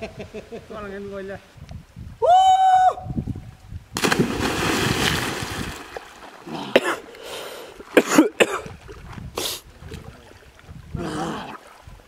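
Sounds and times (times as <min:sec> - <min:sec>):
loud splash into water: 0:04.0 - 0:06.0.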